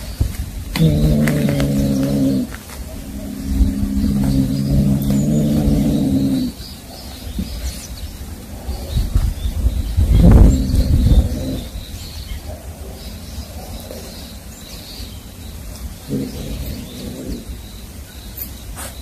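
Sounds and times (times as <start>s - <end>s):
cat growling: 0.7s - 6.6s, 10.2s - 11.8s, 16.1s - 17.7s.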